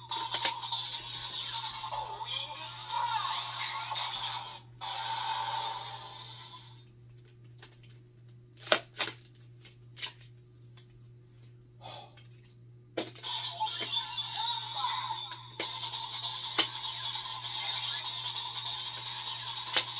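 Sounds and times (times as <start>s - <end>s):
toy electronic music and effects: 0.0s - 6.7s, 13.2s - 19.9s
plastic toy clicks: 19.0s - 19.9s.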